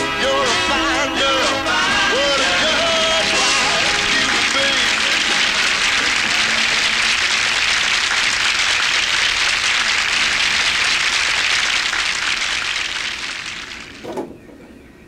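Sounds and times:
audience applause: 0:02.1 - 0:14.0.

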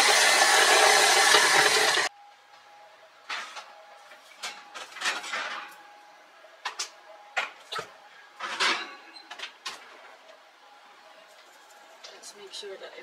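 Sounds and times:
pan and utensils clanking: 0:08.4 - 0:09.5.

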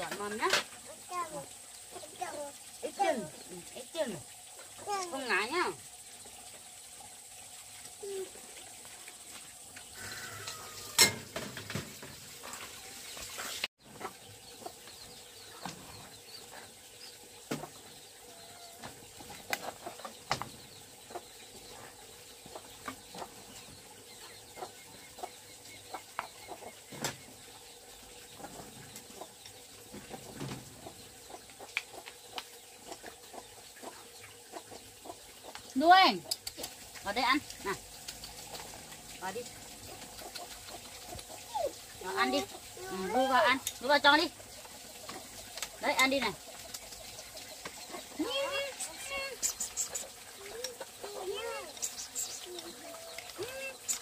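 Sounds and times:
chickens clucking: 0:13.5 - 0:16.8, 0:17.4 - 0:36.9, 0:37.6 - 0:54.0.

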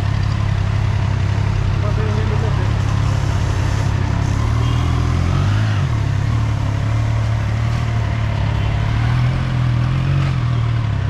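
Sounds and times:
motorcycle engine idling: 0:00.0 - 0:04.8.

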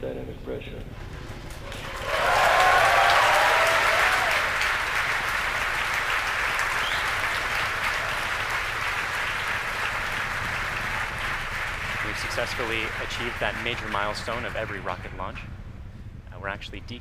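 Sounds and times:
crowd cheering and applauding: 0:01.1 - 0:15.2
people shouting: 0:02.0 - 0:04.5.

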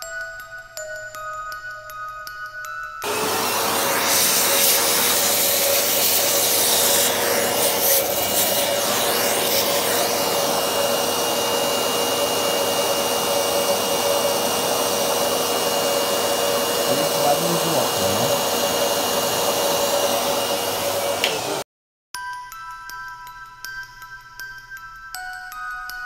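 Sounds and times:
vacuum cleaner hissing and humming: 0:03.0 - 0:21.7.

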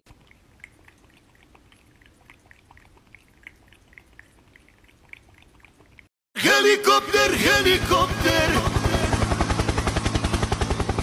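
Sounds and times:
cat lapping at water bottle: 0:00.1 - 0:06.1.

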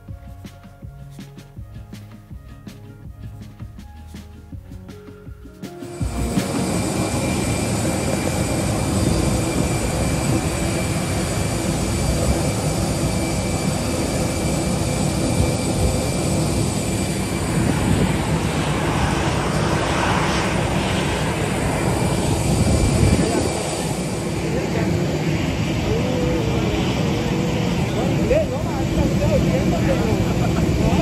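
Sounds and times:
jet airliner drone: 0:05.6 - 0:31.0
high whining tones: 0:05.9 - 0:29.8.

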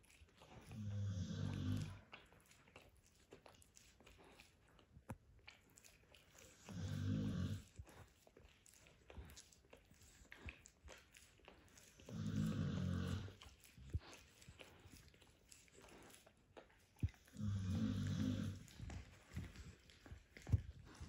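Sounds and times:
puppy chewing bone: 0:00.0 - 0:21.0
puppy grunting: 0:17.3 - 0:19.1.

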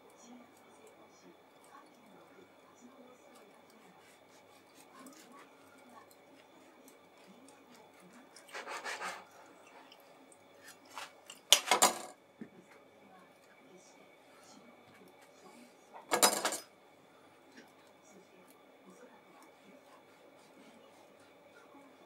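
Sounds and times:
knife sawing through bread: 0:03.9 - 0:05.6, 0:08.4 - 0:09.4.

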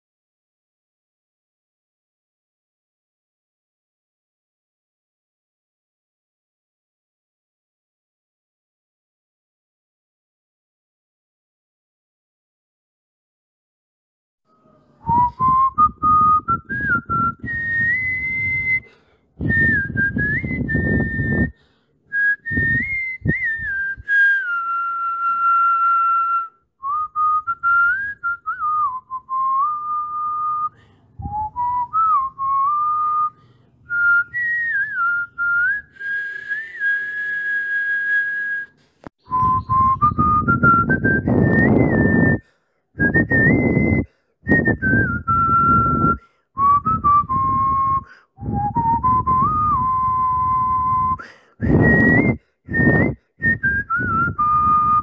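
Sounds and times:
person whistling a tune: 0:14.6 - 0:55.0.

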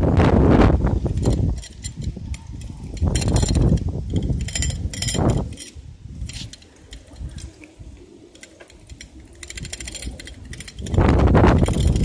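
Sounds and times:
bicycle rattling over paving: 0:00.0 - 0:12.0.

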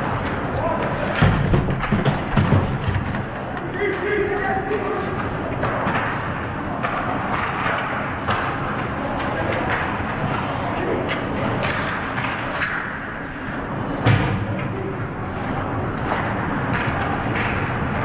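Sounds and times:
sticks and puck clacking: 0:00.0 - 0:18.0.

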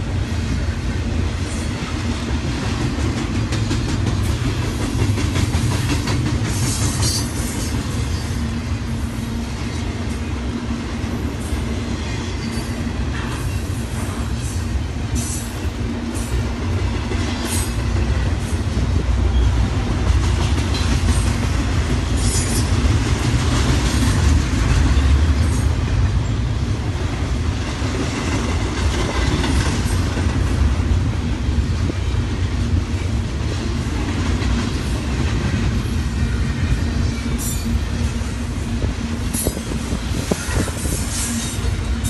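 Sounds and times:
train wheels rumbling on rail: 0:00.0 - 0:42.0
wheels clicking over rail joints: 0:02.3 - 0:07.8.

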